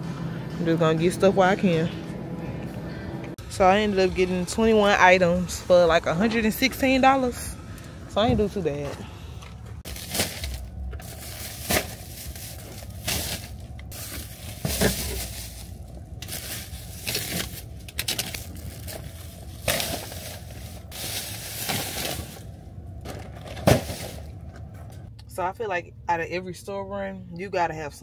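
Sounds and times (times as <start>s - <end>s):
low steady hum: 0.0s - 28.0s
plastic packaging crinkling: 9.8s - 22.5s.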